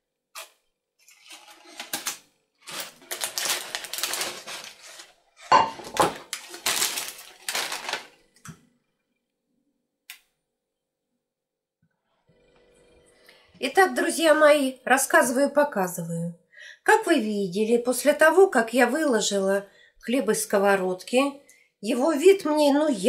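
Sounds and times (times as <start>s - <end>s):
parchment paper crinkling: 1.0s - 8.5s.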